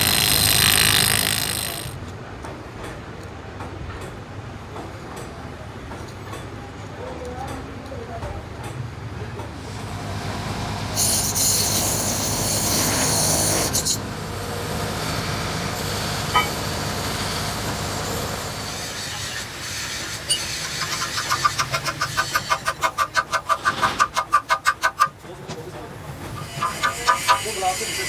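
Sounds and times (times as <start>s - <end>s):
grinder grinding metal: 0.0s - 2.0s, 15.0s - 23.2s, 26.4s - 28.0s
hammer striking metal: 16.3s - 16.6s.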